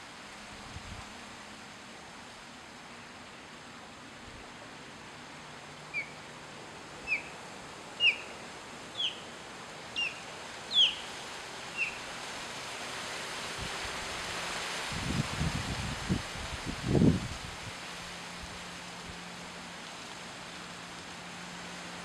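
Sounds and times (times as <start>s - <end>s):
steady outdoor hiss: 0.0s - 22.0s
osprey whistled chirps: 5.9s - 6.2s, 7.0s - 7.4s, 8.0s - 9.3s, 9.9s - 11.1s, 11.7s - 12.0s.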